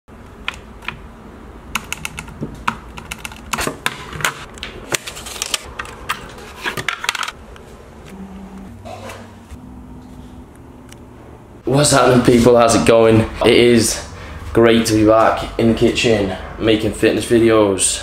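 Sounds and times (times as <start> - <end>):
short low hum: 7.9 - 11.6.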